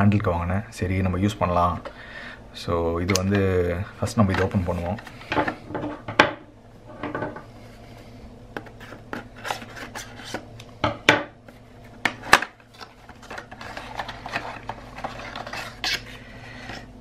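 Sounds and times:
packaging rubbing and scraping: 0:08.6 - 0:10.5, 0:12.6 - 0:16.9.

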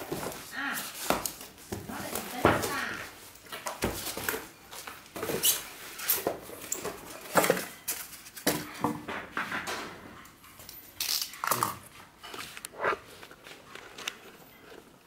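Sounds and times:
foam packing squeaking and rubbing: 0:05.2 - 0:06.8.

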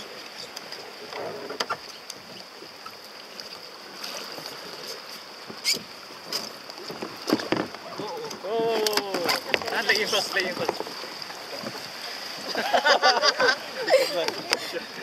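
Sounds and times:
water lapping against kayaks: 0:00.0 - 0:15.0
kayak hulls knocking: 0:05.4 - 0:15.0.

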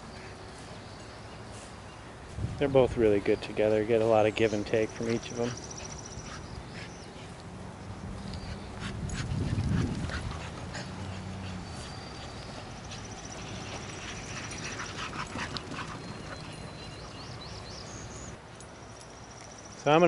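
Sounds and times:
dogs playing: 0:02.8 - 0:18.4.

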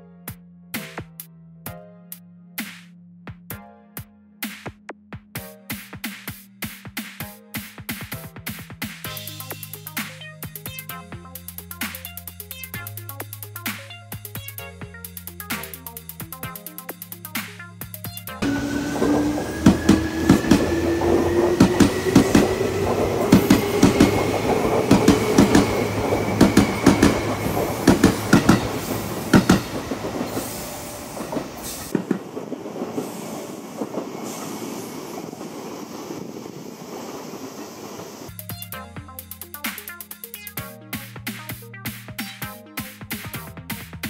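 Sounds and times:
wheels clacking over rail joints: 0:18.4 - 0:37.4
electric train whine rising: 0:18.4 - 0:38.4.

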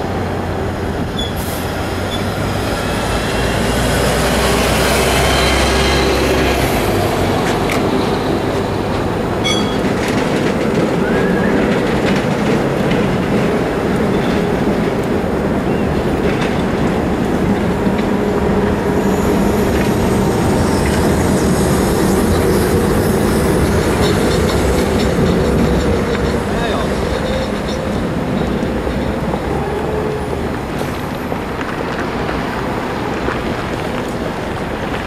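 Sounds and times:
tram wheels rumbling on rail: 0:00.0 - 0:35.0
faint wheel squeals: 0:01.2 - 0:02.3, 0:09.4 - 0:09.9.

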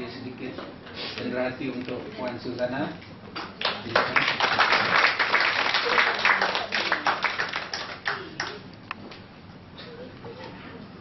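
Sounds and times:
people clapping: 0:03.4 - 0:08.7.

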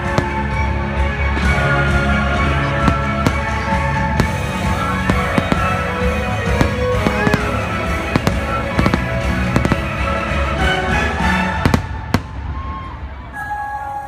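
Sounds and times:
music playing: 0:00.0 - 0:14.0
firework crackle: 0:02.9 - 0:10.5.

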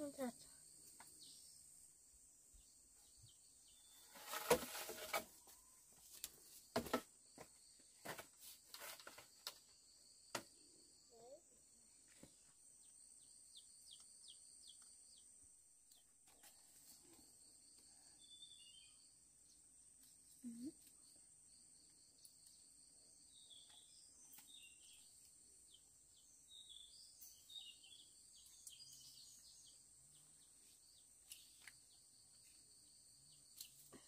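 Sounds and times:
bamboo and leaves being handled: 0:04.0 - 0:09.8, 0:30.3 - 0:32.8.

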